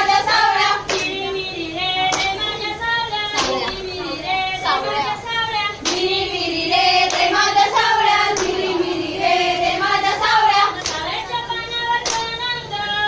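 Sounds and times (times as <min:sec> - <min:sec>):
women singing folk song: 0:00.0 - 0:13.0
hand claps: 0:00.8 - 0:01.3, 0:02.0 - 0:02.6, 0:03.3 - 0:03.9, 0:05.8 - 0:06.2, 0:07.0 - 0:07.5, 0:08.3 - 0:08.7, 0:10.7 - 0:11.2, 0:11.9 - 0:12.4.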